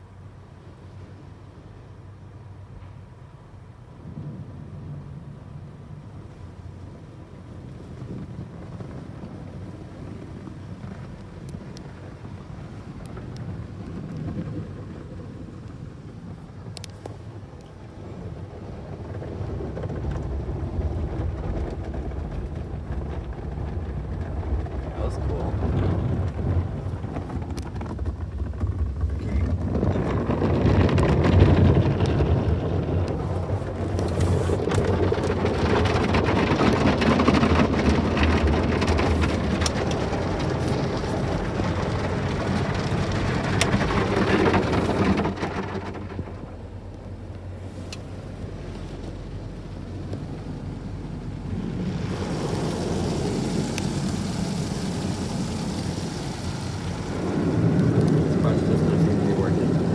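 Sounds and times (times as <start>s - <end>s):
water spraying: 33.1s - 46.6s, 47.4s - 59.9s.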